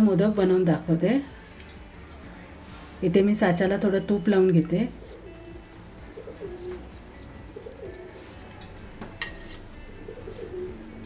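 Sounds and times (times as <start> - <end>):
pigeon cooing: 4.9 - 8.4, 9.8 - 11.0.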